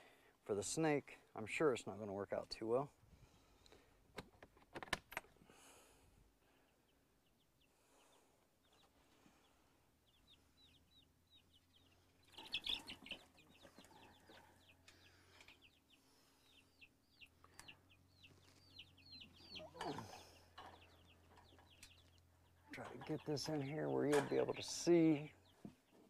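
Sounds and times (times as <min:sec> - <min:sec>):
chicks peeping: 0:06.6 - 0:26.0.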